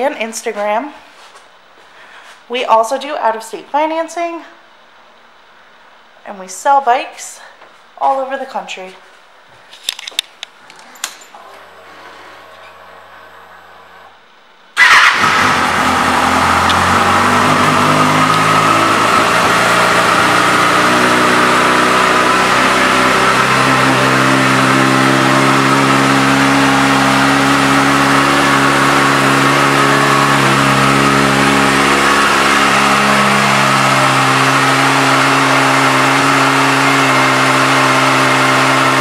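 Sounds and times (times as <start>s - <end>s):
motorcycle engine starting and idling: 10.7s - 14.2s, 14.8s - 39.0s.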